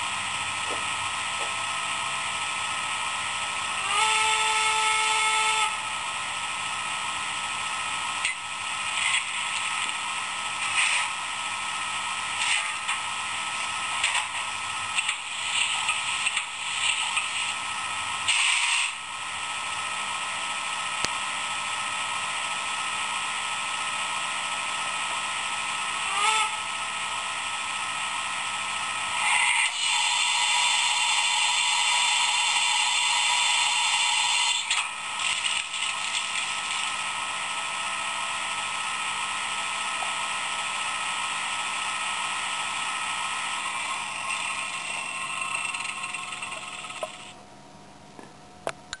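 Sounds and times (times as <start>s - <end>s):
steam locomotive hiss: 7.5s - 19.6s, 28.9s - 47.4s.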